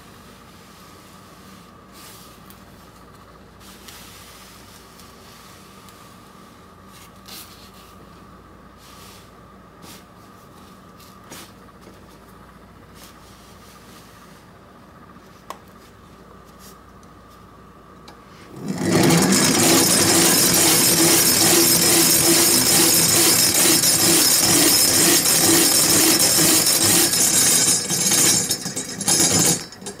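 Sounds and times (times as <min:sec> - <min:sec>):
hand-crank generator whirring: 0:18.5 - 0:30.0.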